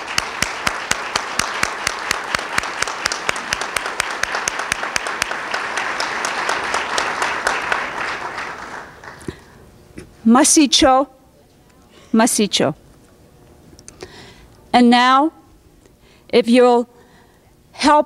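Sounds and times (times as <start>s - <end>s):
sharp nearby claps: 0.0s - 9.5s
audience applauding: 0.0s - 9.6s.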